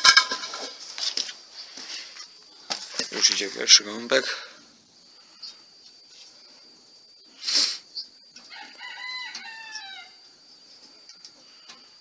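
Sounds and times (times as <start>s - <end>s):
rooster crowing: 8.4s - 10.3s.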